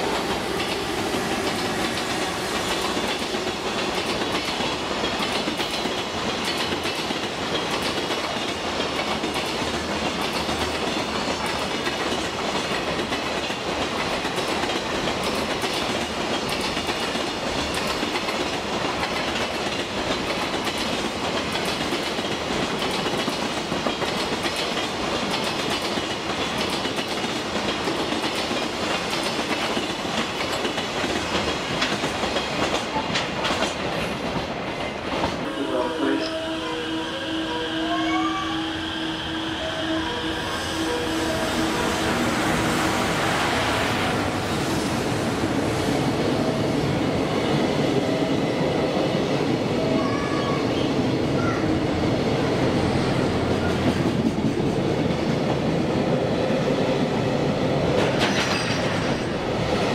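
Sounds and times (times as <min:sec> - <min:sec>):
train wheels clattering over rail joints: 0:00.5 - 0:35.4, 0:57.9 - 0:59.5.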